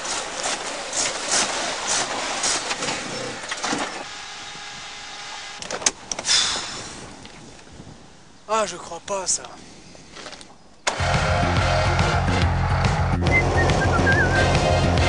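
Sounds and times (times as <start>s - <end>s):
car engine faltering: 10.9s - 15.0s.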